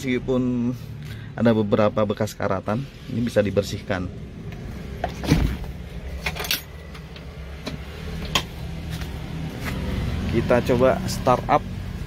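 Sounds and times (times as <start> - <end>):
sharp knocks and clicks: 6.2 - 8.6.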